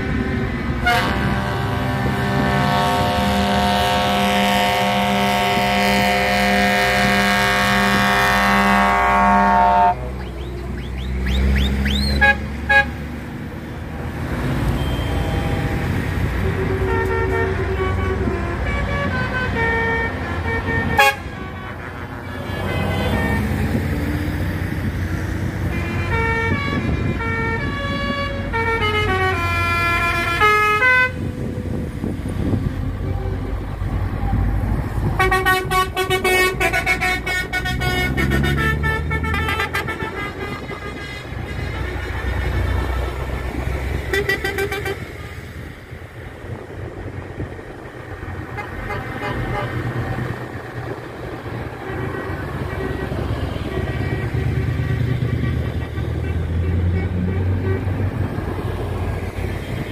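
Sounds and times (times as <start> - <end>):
multi-note air horns: 0.0 - 10.2, 12.1 - 13.0, 14.7 - 23.9, 25.6 - 31.3, 35.2 - 43.4, 44.0 - 45.5, 48.4 - 50.2, 51.0 - 58.4
diesel truck engines running: 0.0 - 59.9.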